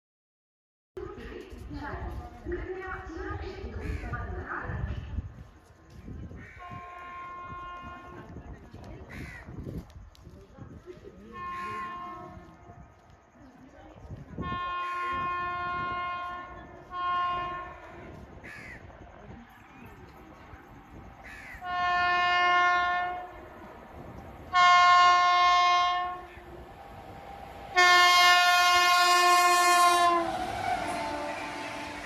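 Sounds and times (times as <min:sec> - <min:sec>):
locomotive horn blasts: 0:06.6 - 0:08.3, 0:11.3 - 0:12.5, 0:14.4 - 0:18.0, 0:21.6 - 0:23.4, 0:24.5 - 0:26.3, 0:27.7 - 0:32.0.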